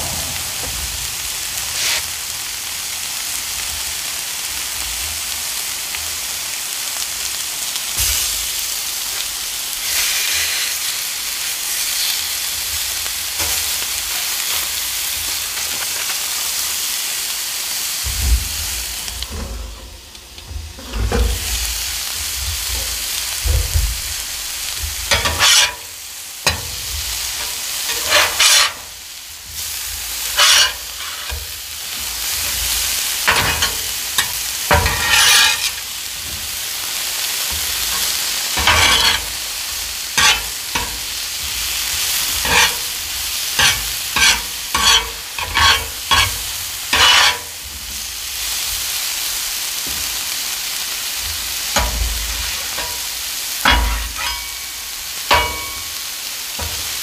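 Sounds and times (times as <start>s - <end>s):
metal spatula scraping griddle: 0.0s - 2.2s, 9.8s - 16.4s, 19.2s - 20.0s, 24.7s - 47.7s, 51.2s - 56.0s, 56.6s - 57.0s
vegetables sizzling on griddle: 0.0s - 57.0s.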